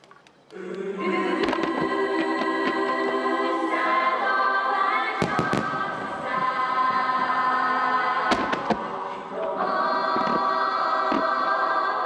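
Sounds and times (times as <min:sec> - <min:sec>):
choral music: 0:00.4 - 0:12.0
firework shells bursting: 0:05.2 - 0:06.4, 0:08.3 - 0:08.9.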